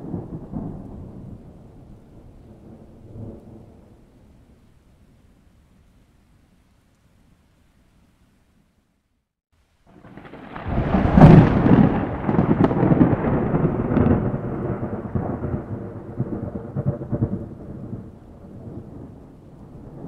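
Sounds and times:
thunder clap and rumble: 0:09.9 - 0:20.0.

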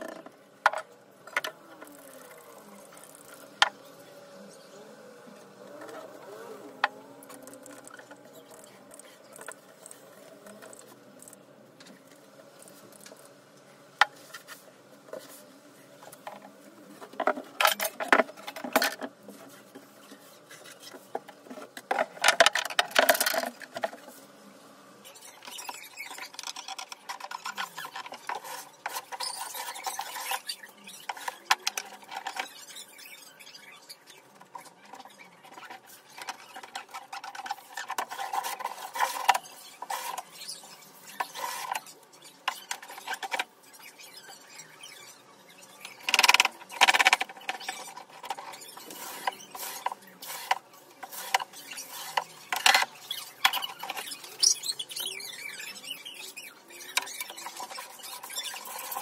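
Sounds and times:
rubbing and scraping on wood: 0:14.0 - 0:24.4, 0:25.1 - 0:33.5, 0:34.1 - 0:45.1, 0:45.7 - 0:59.0.

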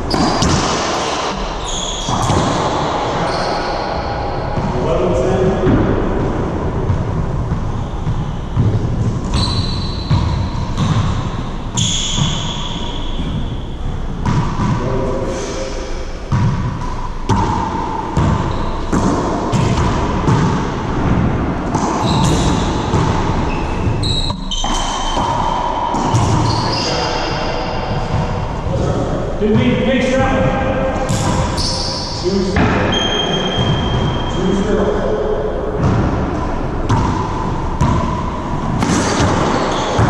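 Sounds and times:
shoes squeaking on hardwood floor: 0:01.6 - 0:02.5, 0:07.7 - 0:10.9, 0:22.0 - 0:22.8, 0:23.4 - 0:27.6, 0:31.4 - 0:32.2, 0:32.9 - 0:34.4.

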